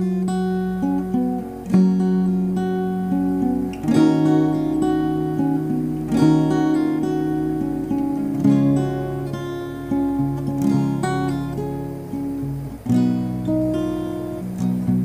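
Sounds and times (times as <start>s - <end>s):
acoustic guitar chords and notes: 0.0s - 15.0s.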